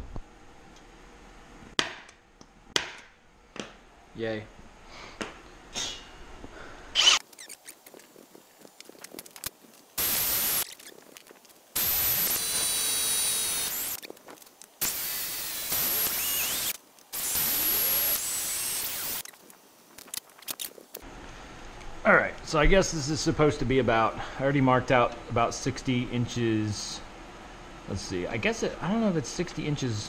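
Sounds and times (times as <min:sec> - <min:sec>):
cordless drill drilling metal: 0:07.0 - 0:07.3, 0:10.0 - 0:10.6, 0:11.8 - 0:14.0, 0:14.8 - 0:19.2.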